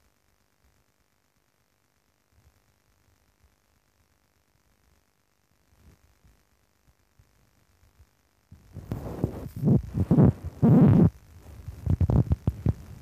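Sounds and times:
muffled thumps and rubbing on microphone: 8.5s - 13.0s.

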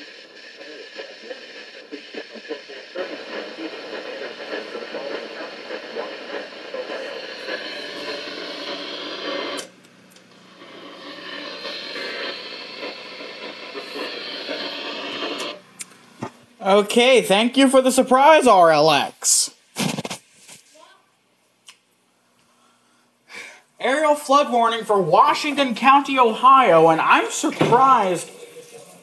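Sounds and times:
hissing radio static: 0.0s - 9.8s, 10.5s - 15.7s.

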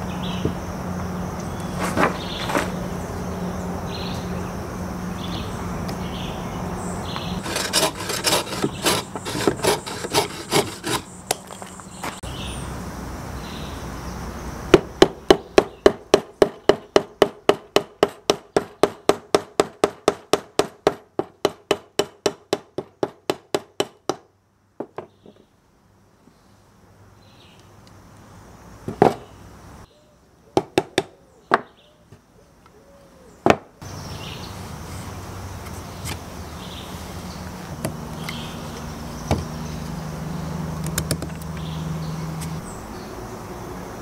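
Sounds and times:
knife scraping wood: 1.6s - 2.8s, 7.4s - 11.5s.

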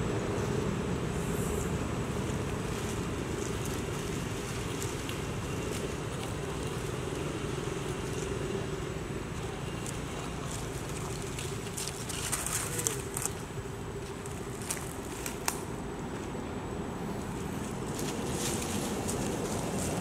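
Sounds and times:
outdoor background rumble: 0.0s - 20.0s.

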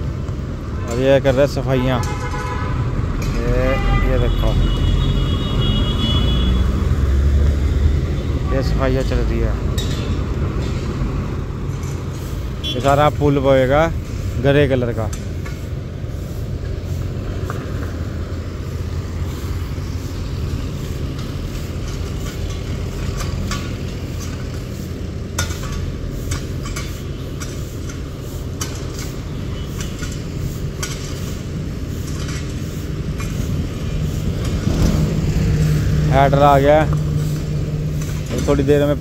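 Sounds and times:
diesel engine running: 4.8s - 39.0s
sharp clicks and knocks: 20.8s - 24.7s, 25.3s - 31.4s, 32.0s - 33.6s, 36.9s - 39.0s.

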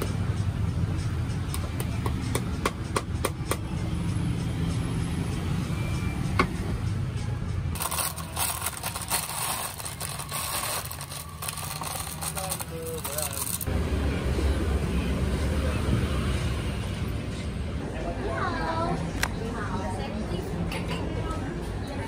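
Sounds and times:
low street rumble: 0.0s - 22.0s.

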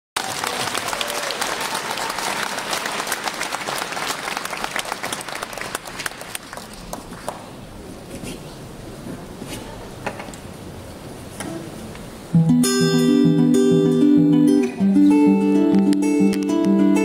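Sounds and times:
audience applauding: 0.2s - 7.6s.

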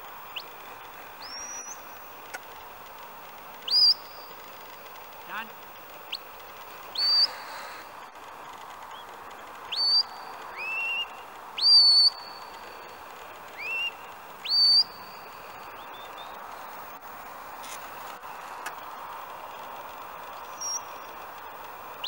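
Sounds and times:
shepherd's whistle notes: 7.0s - 7.5s, 13.6s - 15.0s.

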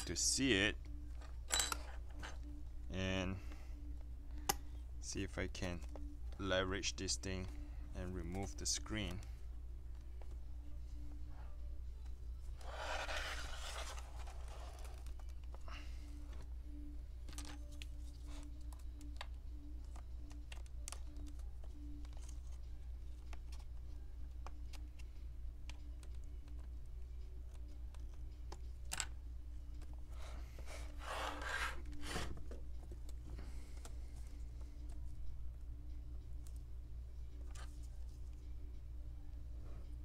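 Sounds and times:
steady low hum: 0.0s - 40.0s
rustling scrape: 12.6s - 14.9s.

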